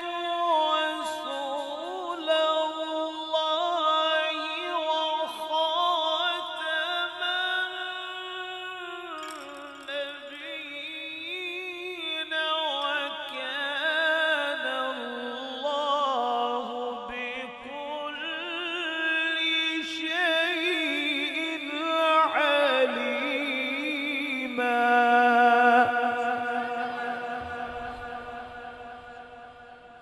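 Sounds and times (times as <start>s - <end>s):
man reciting melodically: 0.0s - 29.9s.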